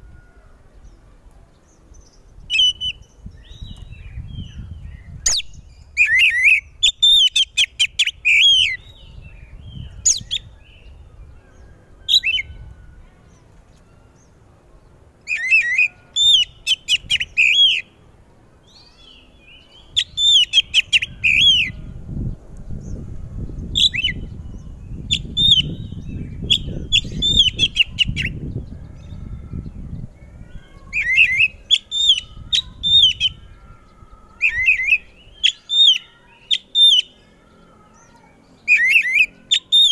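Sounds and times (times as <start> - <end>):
bird singing whistled notes: 1.9 - 12.9, 15.3 - 17.9, 18.7 - 37.2, 38.6 - 39.9.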